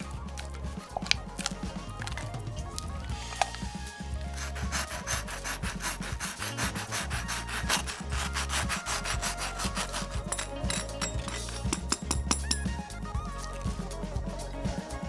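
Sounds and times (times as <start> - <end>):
knife sawing through cake crust: 4.1 - 11.8.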